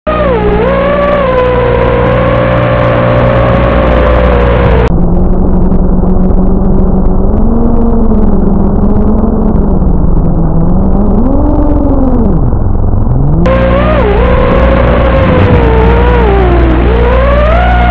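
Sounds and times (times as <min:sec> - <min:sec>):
quadcopter motors whining: 0:00.1 - 0:04.9, 0:13.3 - 0:17.9.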